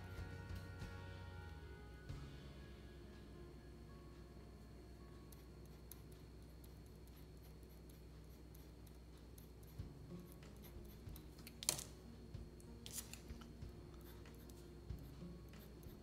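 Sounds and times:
pencil drawing on paper: 5.3s - 11.9s, 12.8s - 16.0s.

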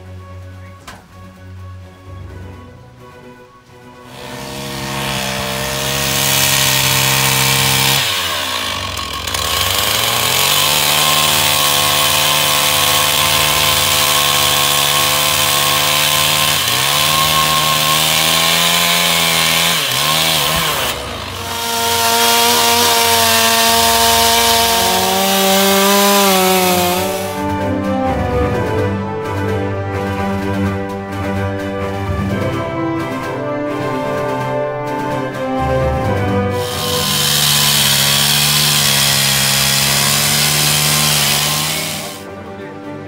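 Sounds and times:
chainsaw cutting wood: 4.1s - 27.6s, 33.8s - 42.2s.

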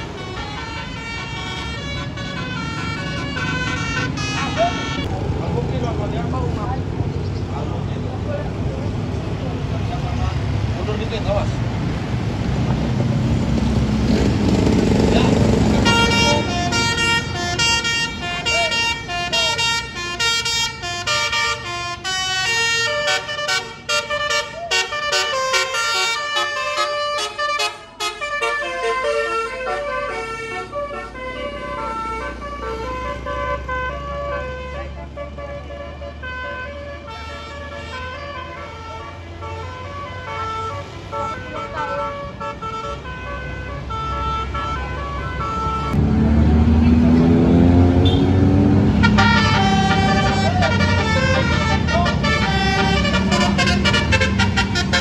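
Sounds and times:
multi-note bus horn melody: 0.0s - 5.1s, 15.3s - 46.1s, 47.0s - 55.0s.

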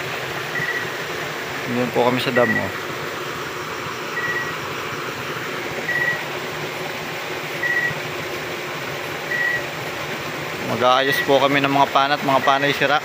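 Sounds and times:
water rushing: 0.0s - 13.0s
short high beep: 0.6s - 0.8s, 2.4s - 2.7s, 4.2s - 4.5s, 5.9s - 6.2s, 7.6s - 8.0s.

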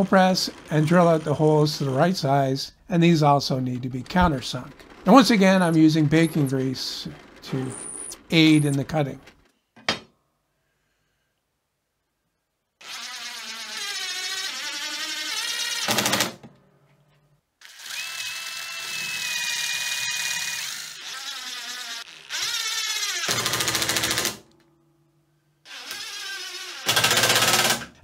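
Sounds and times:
cordless drill whining: 0.0s - 2.3s, 4.1s - 9.2s, 12.8s - 16.2s, 17.6s - 24.3s, 25.7s - 27.8s.

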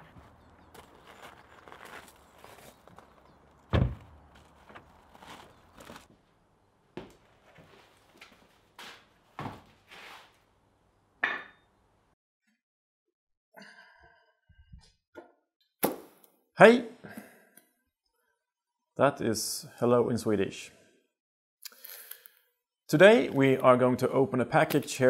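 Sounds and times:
footsteps: 0.0s - 6.3s, 7.0s - 10.3s
car door slamming: 3.7s - 4.1s.

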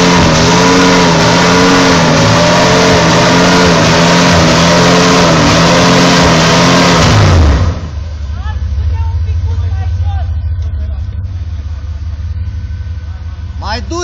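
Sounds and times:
engine revving under load: 0.0s - 8.0s
tyres churning through mud: 0.0s - 8.0s.

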